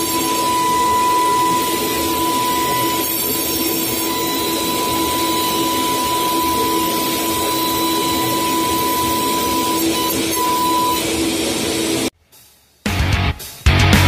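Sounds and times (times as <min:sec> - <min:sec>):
router spindle high whine: 0:00.0 - 0:12.1.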